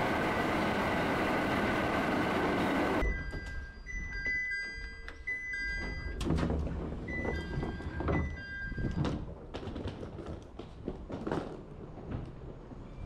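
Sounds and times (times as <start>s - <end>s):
low train rumble: 0.0s - 3.2s
electronic two-tone door chime: 3.0s - 6.3s.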